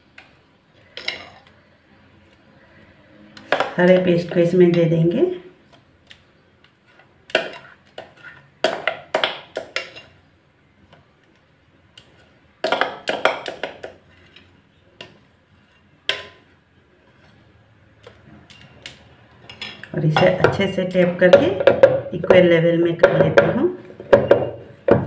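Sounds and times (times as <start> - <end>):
utensil scraping a bowl: 6.9 - 8.5, 15.5 - 17.5.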